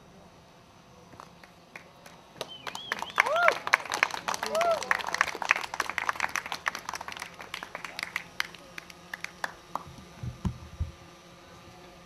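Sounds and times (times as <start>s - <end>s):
audience applause: 2.4s - 9.8s.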